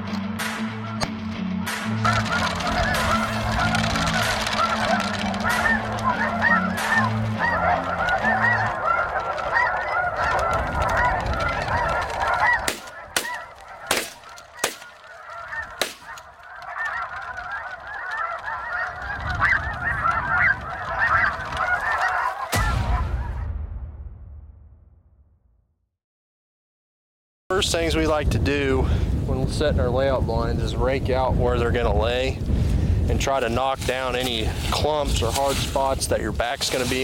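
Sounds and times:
geese honking: 0.4 - 23.4, 33.2 - 37.0.

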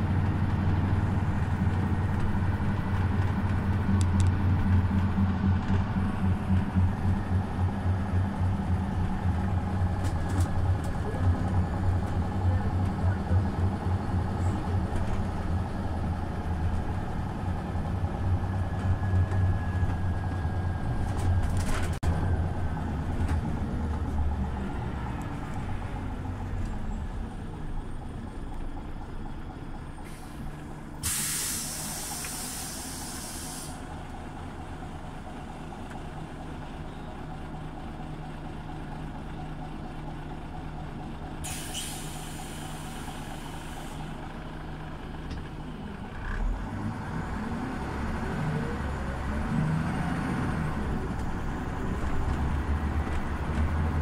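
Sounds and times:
bus engine droning: 0.0 - 54.0
compressed air hiss: 31.0 - 33.8, 41.4 - 44.0.

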